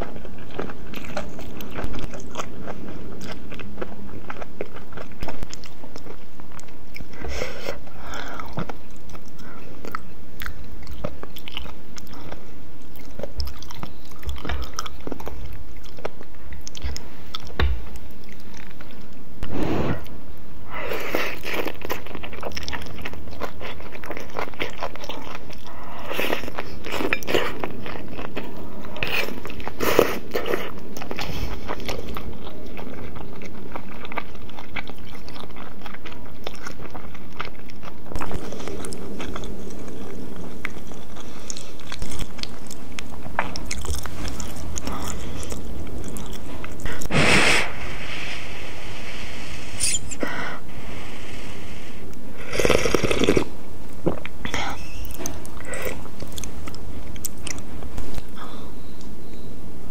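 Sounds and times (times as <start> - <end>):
chewing noodles: 0.0 - 19.2, 20.8 - 47.2, 52.4 - 58.9
slurping soup from a spoon: 49.7 - 50.2
wet mouth clicks: 49.8 - 50.2.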